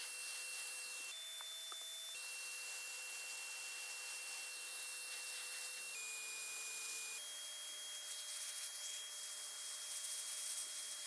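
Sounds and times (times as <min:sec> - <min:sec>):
motor whine: 0:00.0 - 0:11.0
paint spray gun hissing: 0:08.0 - 0:11.0.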